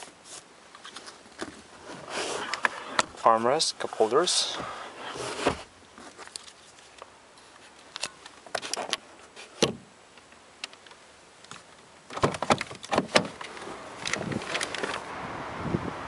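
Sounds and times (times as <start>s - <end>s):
steady outside noise: 0.0s - 16.0s
clicks and knocks of handling parts: 6.0s - 15.0s
car door unlatching and opening: 9.6s - 9.9s, 12.1s - 15.0s.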